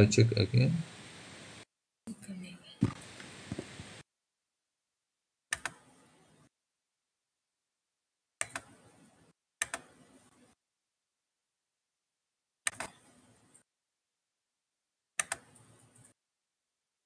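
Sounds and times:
keyboard clicking: 0:05.5 - 0:05.9, 0:08.4 - 0:08.8, 0:09.6 - 0:10.0, 0:12.7 - 0:13.0, 0:15.2 - 0:16.1.

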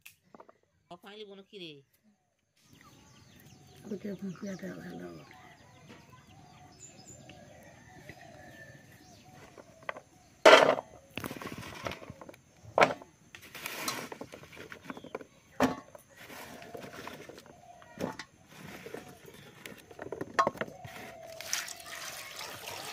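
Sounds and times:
rustling scrapes and knocks: 0:09.2 - 0:21.5
fruit clattering into steel bowl: 0:09.5 - 0:21.8.

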